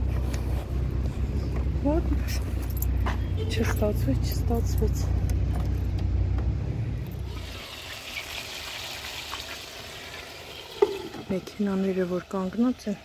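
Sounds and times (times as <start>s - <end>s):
food sizzling in frying pan: 7.3s - 12.9s.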